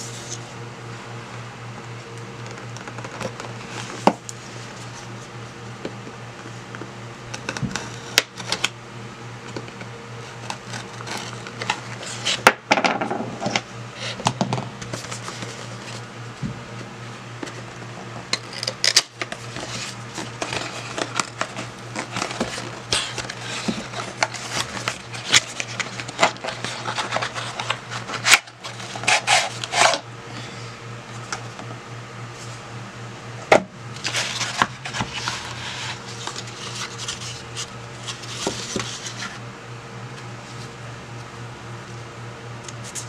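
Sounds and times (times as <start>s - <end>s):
steady low hum: 0.0s - 43.0s
cardboard scraping and rustling: 10.2s - 12.5s, 14.8s - 16.5s, 17.4s - 30.0s, 34.0s - 39.4s.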